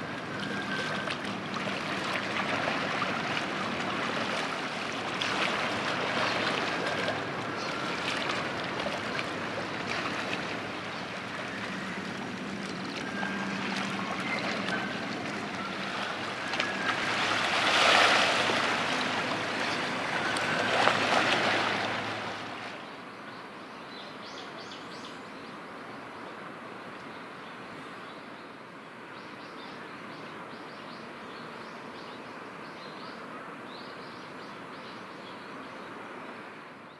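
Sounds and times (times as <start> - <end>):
steady noisy wash: 0.0 - 22.9.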